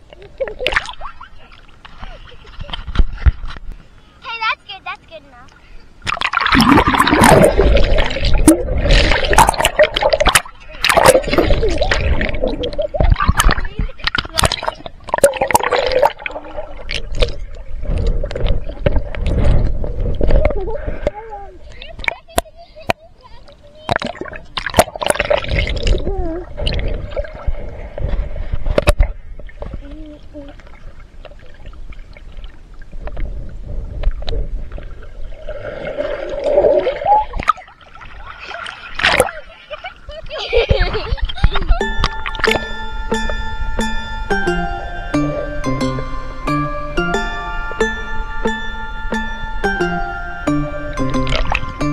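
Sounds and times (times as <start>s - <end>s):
water splashing and gurgling: 0.0s - 4.4s, 5.0s - 51.9s
small clicks and bubbles: 5.4s - 20.7s, 21.7s - 35.3s
muffled underwater rumble: 6.6s - 22.8s
wavering muffled tone: 41.6s - 51.9s.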